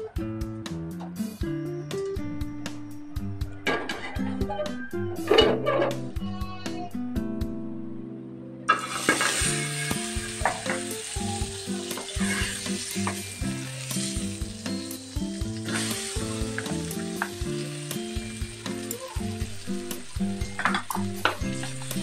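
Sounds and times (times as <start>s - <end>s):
butter sizzling in a wok: 8.7s - 22.0s.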